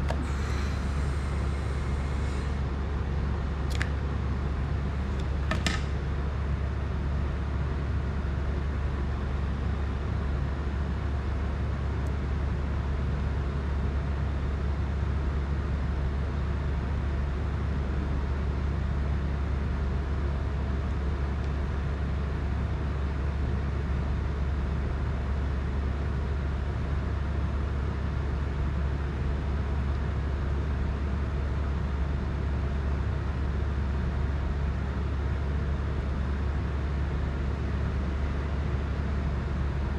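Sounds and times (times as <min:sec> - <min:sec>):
low droning rumble with hiss: 0:00.0 - 0:13.7, 0:31.1 - 0:39.9.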